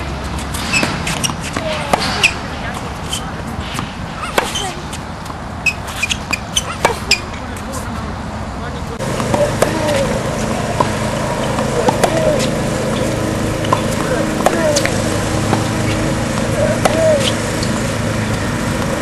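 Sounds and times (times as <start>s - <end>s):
tennis rackets hitting balls: 0.0s - 8.2s, 8.9s - 19.0s
steady low hum: 0.0s - 19.0s.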